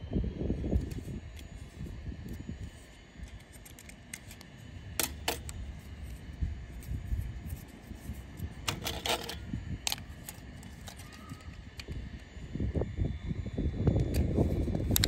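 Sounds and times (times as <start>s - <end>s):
plastic toy clicks and snaps: 3.3s - 5.6s, 8.6s - 12.0s.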